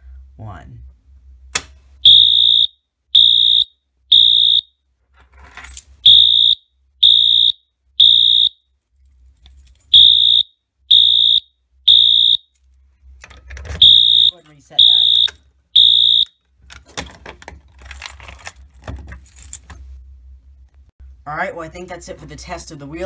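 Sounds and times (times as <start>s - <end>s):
high-pitched electronic alarm horn: 2.0s - 4.7s, 6.0s - 8.6s, 10.0s - 12.5s, 13.8s - 16.3s.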